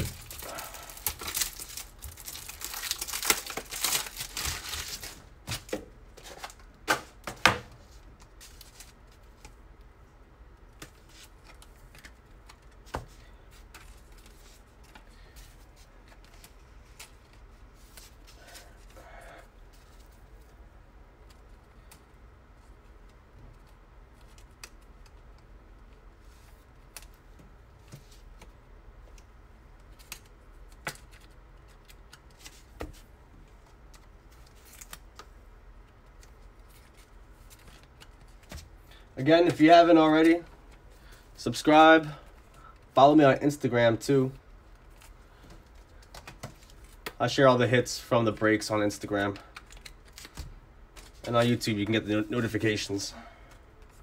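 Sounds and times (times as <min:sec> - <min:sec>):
plastic sleeves crinkling: 0:00.0 - 0:06.7.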